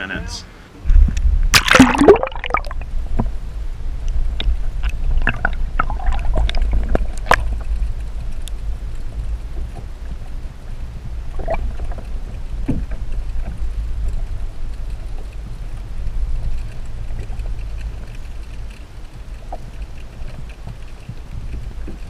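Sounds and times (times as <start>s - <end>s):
muffled underwater rumble: 0.8s - 22.0s.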